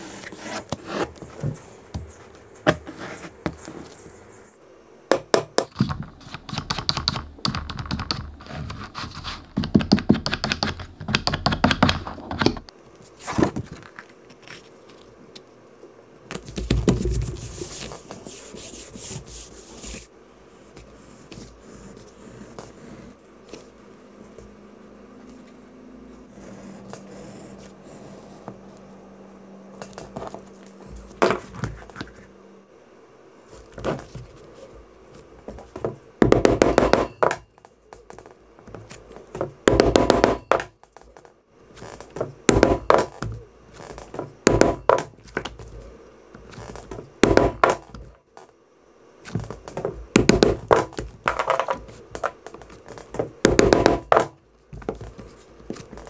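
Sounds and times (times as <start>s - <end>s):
soft handling sounds: 16.3s - 29.1s.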